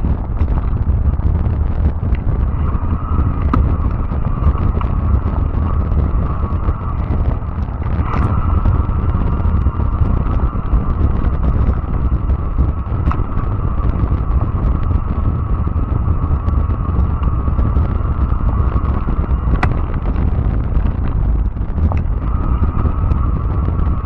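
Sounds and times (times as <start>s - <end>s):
electric motor whine: 0.0s - 24.0s
tyre rumble: 0.0s - 24.0s
wind buffeting microphone: 0.0s - 24.0s.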